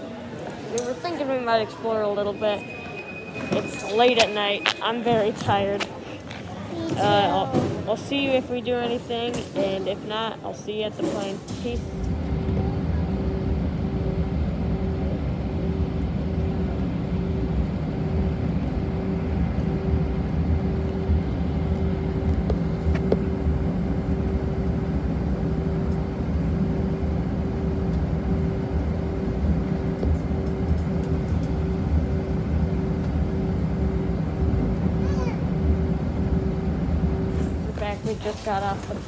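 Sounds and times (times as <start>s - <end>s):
airliner engine drone: 0.0s - 39.0s.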